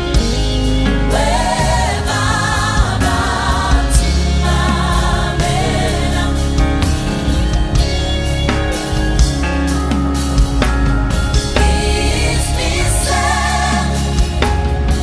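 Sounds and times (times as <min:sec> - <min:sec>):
vocal group singing in harmony: 0:00.0 - 0:07.8, 0:11.3 - 0:15.0
live band playing: 0:00.0 - 0:15.0.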